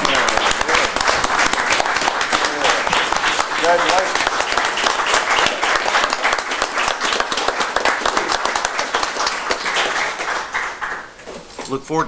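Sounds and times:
people clapping: 0.0 - 11.7.

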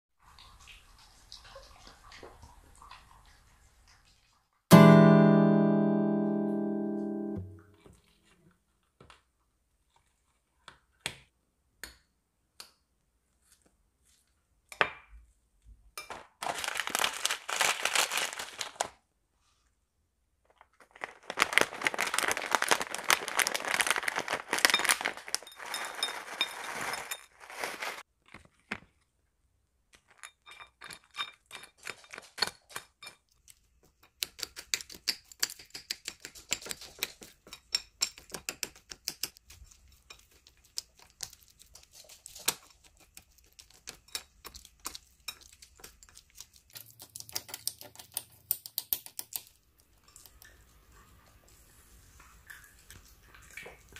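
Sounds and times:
plastic bag crinkling: 16.1 - 19.0, 20.4 - 28.0.

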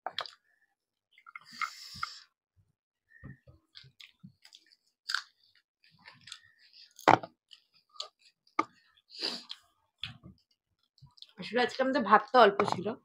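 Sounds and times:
wet chewing and lip smacks: 3.7 - 8.6, 9.3 - 11.4.

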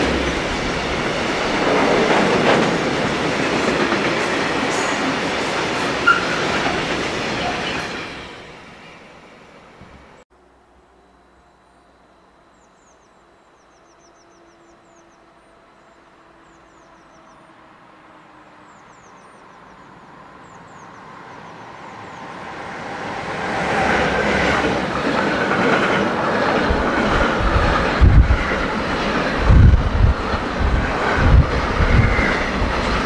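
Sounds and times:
train wheels rumbling and clattering: 0.0 - 8.4, 22.5 - 33.0
freight train passing: 0.0 - 33.0.

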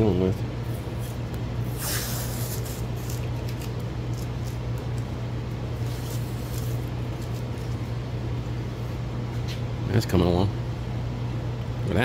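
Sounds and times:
steady low hum: 0.0 - 12.0
masking tape ripping: 1.7 - 4.6.

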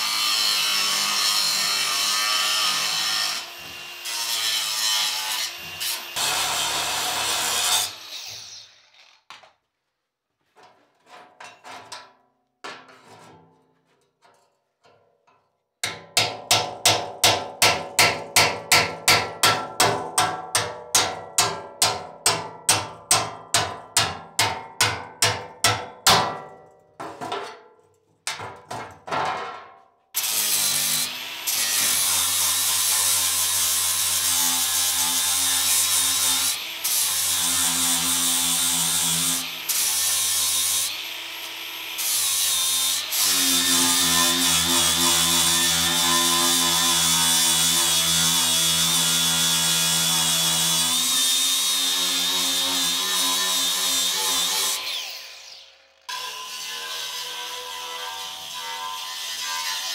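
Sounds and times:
hammer striking chisel on steel: 15.8 - 26.6
angle grinder grinding steel: 30.2 - 59.9.

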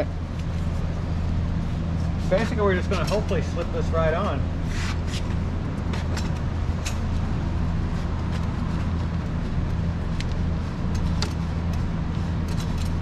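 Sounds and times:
steady low hum: 0.0 - 13.0
metallic clicks and scrapes: 8.2 - 13.0.

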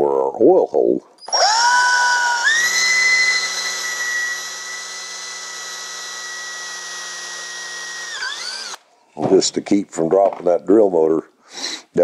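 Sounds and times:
cordless drill motor whining: 1.2 - 8.8.

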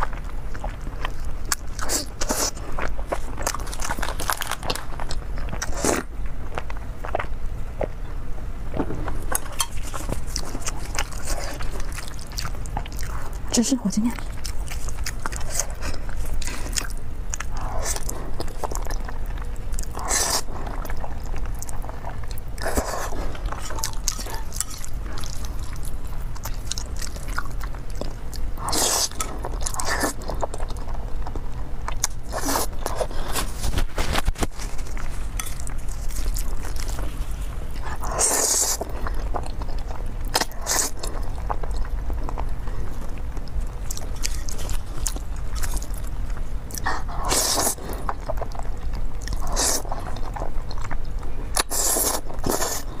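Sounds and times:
wet chewing: 0.0 - 53.0
slurping noodles: 19.9 - 20.7, 28.6 - 30.3, 37.8 - 38.9, 46.9 - 48.1, 49.3 - 50.0, 51.6 - 53.0.

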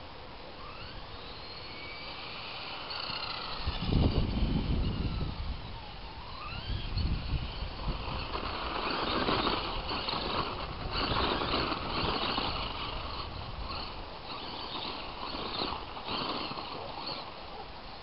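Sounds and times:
toy truck motor whining: 0.5 - 18.0
tyres on gravel: 6.2 - 18.0.

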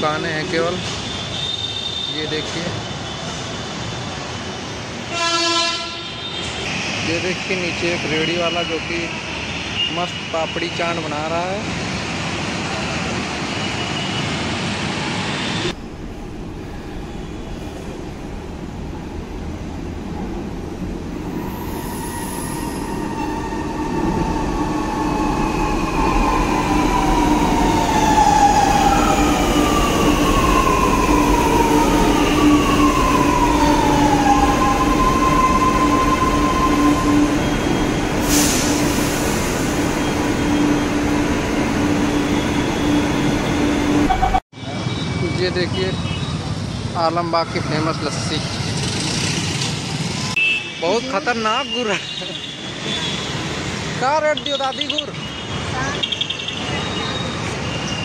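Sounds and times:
electric train arriving: 10.5 - 45.5
train hum: 11.5 - 44.4.

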